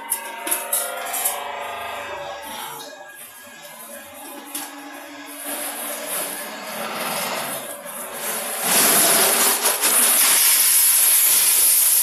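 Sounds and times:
sorting machine running: 0.0s - 12.0s
loud steady hiss: 9.0s - 12.0s.

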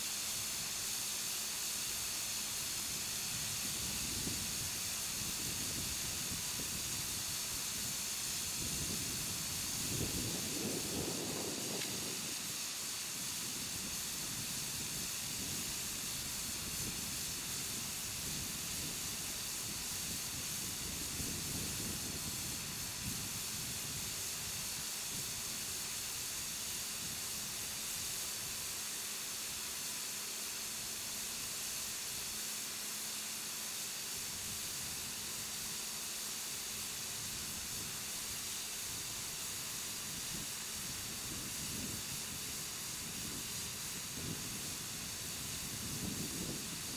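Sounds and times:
air hissing from inner tube: 0.0s - 46.9s.

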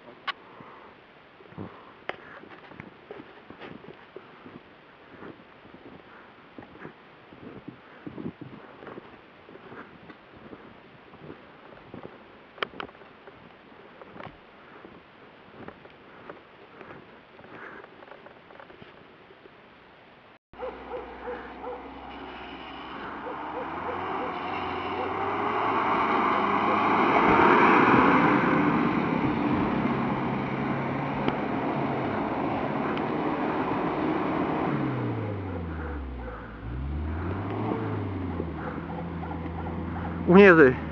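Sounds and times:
faint rustles: 0.0s - 19.8s
engine revving hard: 20.8s - 40.9s.

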